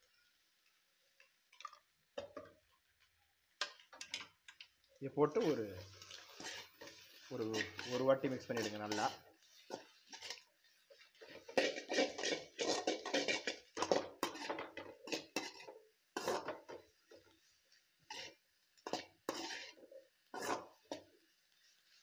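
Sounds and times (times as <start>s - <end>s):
metal spatula scraping a wok: 5.4s - 17.2s, 18.0s - 22.0s.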